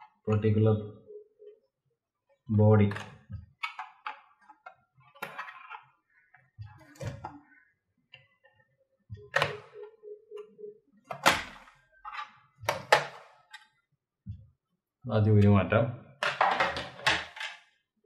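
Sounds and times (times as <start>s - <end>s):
plastic clicks and knocks: 2.9s - 5.8s.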